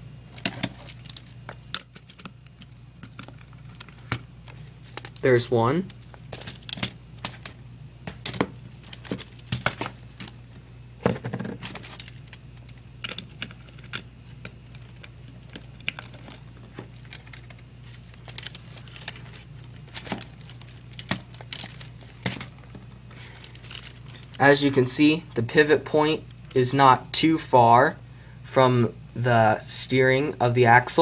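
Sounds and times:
low steady hum: 0:00.0 - 0:31.0
plastic clicks and rattles: 0:00.3 - 0:05.2, 0:05.9 - 0:10.4, 0:11.2 - 0:24.4.

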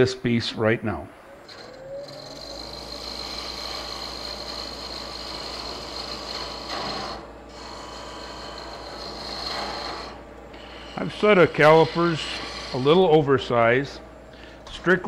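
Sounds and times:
lathe humming and whining: 0:00.6 - 0:15.0
turning tool rasping wood: 0:01.5 - 0:13.3.

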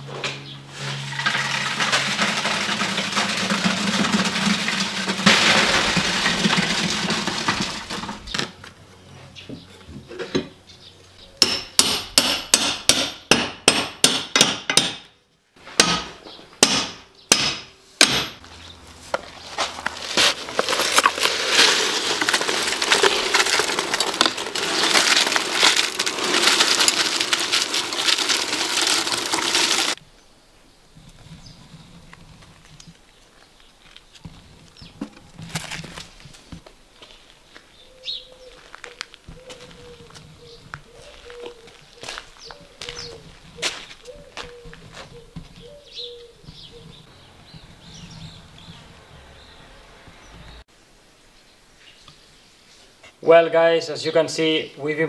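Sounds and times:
wet concrete pouring: 0:00.8 - 0:08.4, 0:19.8 - 0:30.0.

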